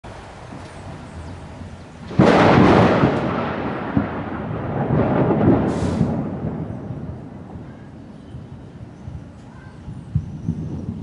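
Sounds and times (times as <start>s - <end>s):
thunder crack and rumble: 0.2s - 11.0s.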